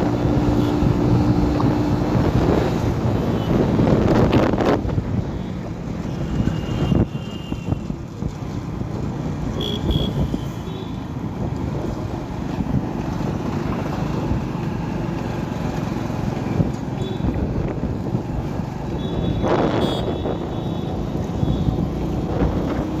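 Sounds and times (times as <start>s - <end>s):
wind buffeting microphone: 0.0s - 5.4s, 16.4s - 23.0s
engine and road rumble: 0.0s - 23.0s.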